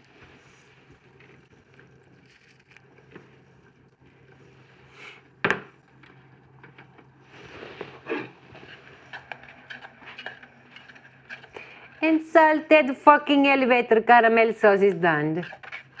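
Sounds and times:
faint low hum: 0:00.0 - 0:16.0
object knocked on hard counter: 0:05.4 - 0:05.7.

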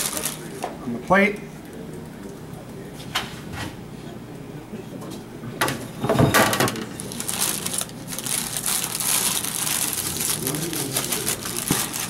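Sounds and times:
parchment paper crinkling: 0:00.0 - 0:00.6, 0:06.8 - 0:12.0.

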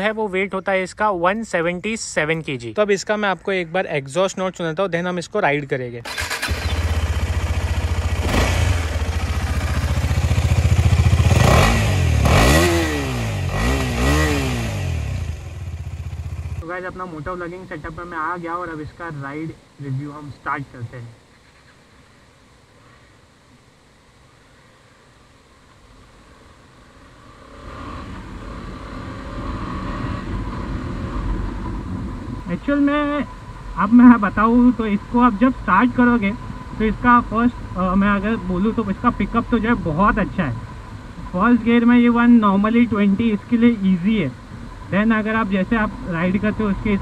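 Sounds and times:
motorcycle engine idling and revving: 0:06.1 - 0:16.9, 0:27.0 - 0:32.6.

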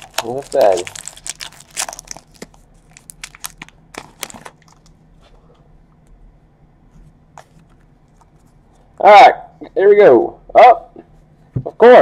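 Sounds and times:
foil wrapper crinkling: 0:00.0 - 0:05.0.

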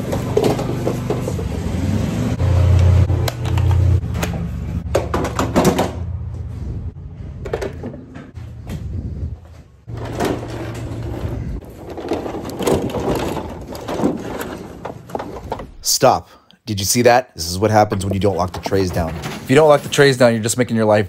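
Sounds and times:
tool trays rattling and knocking: 0:00.0 - 0:01.7, 0:03.4 - 0:06.2, 0:09.9 - 0:15.8, 0:17.9 - 0:20.9
vehicle engine drone: 0:00.0 - 0:10.1
trolley rattling over grass: 0:09.9 - 0:15.6.

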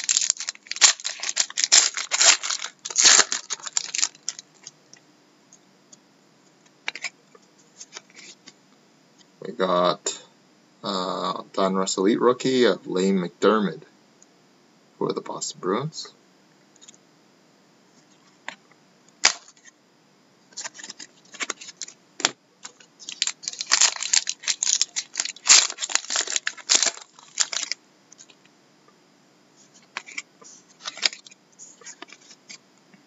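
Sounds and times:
wrapper tearing and crinkling: 0:00.0 - 0:04.4, 0:19.2 - 0:19.7, 0:20.6 - 0:22.0, 0:22.7 - 0:27.8, 0:30.8 - 0:32.4.

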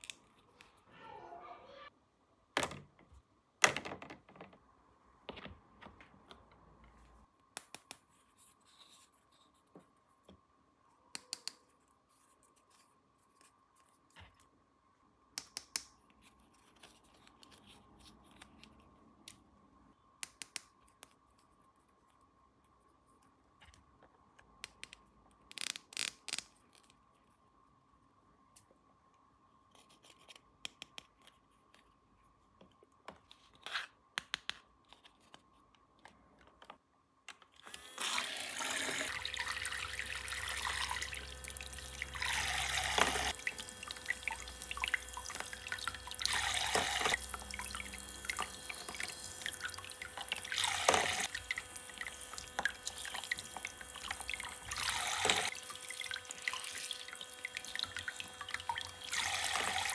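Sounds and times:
faint steady hum: 0:34.8 - 0:59.9
water running into basin: 0:38.1 - 0:59.9
water splashing: 0:39.0 - 0:59.9.

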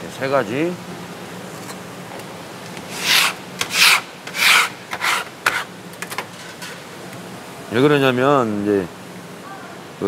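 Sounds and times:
metal scraper on plastic board: 0:02.9 - 0:05.7.

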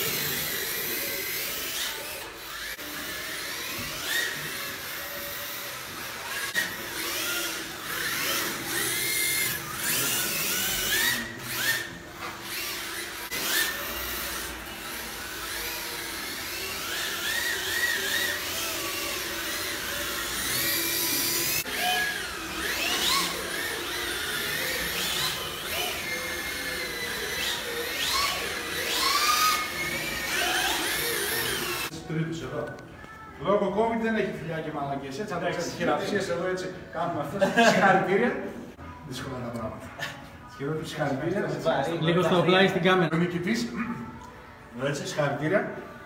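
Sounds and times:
electric motors whining: 0:00.0 - 0:32.0.

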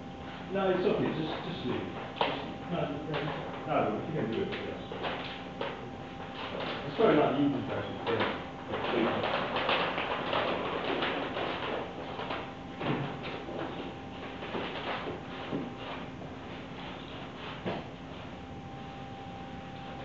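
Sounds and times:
faint electrical hum: 0:00.0 - 0:20.0
rustles and shuffles: 0:08.7 - 0:18.4.

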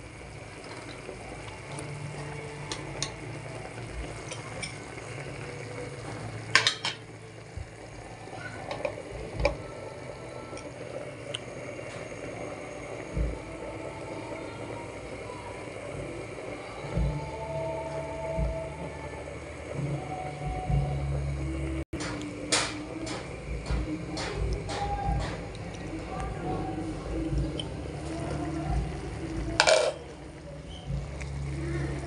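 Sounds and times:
pot bubbling: 0:00.0 - 0:32.0
glass lid clinking on pot: 0:06.5 - 0:07.0, 0:29.6 - 0:30.0.

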